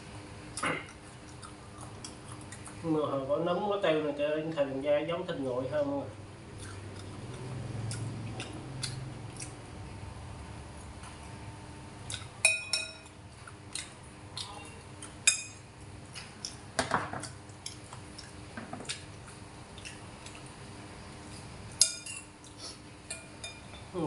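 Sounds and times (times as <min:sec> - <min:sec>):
metal spoon clinking on bowls: 0:12.4 - 0:13.2, 0:15.2 - 0:15.6, 0:21.8 - 0:22.3, 0:23.0 - 0:23.9.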